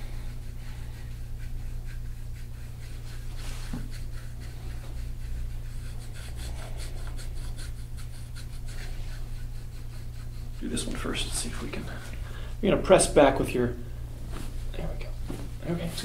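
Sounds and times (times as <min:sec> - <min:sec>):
scraping tool rubbing skin: 0:00.0 - 0:12.2.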